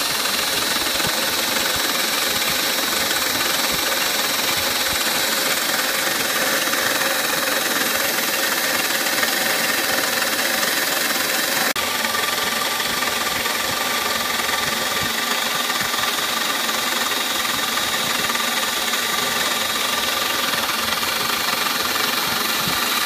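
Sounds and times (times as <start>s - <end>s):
end mill cutting plastic: 0.0s - 23.0s
milling machine spindle whine: 0.0s - 23.0s.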